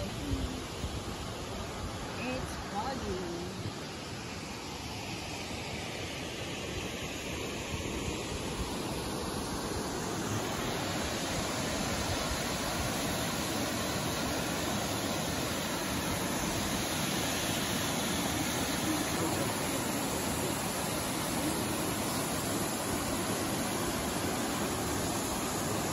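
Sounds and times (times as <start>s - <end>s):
waterfall rushing: 6.6s - 25.9s.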